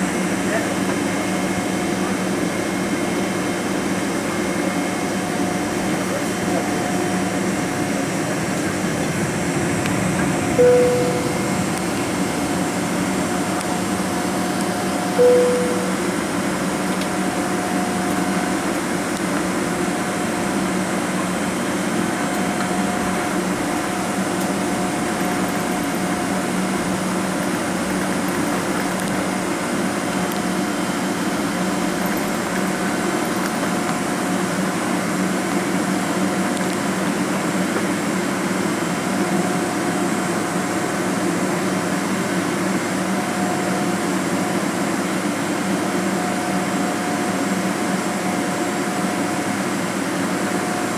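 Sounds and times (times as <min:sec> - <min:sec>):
jet engines idling hum: 0:00.0 - 0:50.9
faint steady whine: 0:08.1 - 0:34.2.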